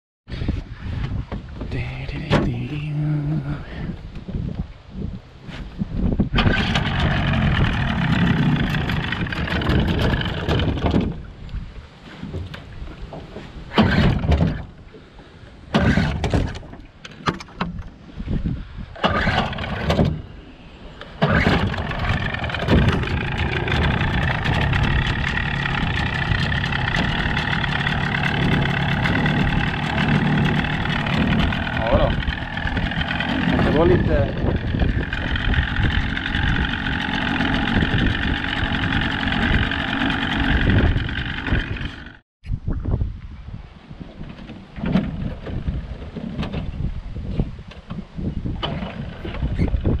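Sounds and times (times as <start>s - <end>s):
outboard motor starting and running: 6.2s - 11.4s, 12.2s - 18.0s, 18.8s - 42.2s, 43.9s - 46.9s, 48.4s - 50.0s.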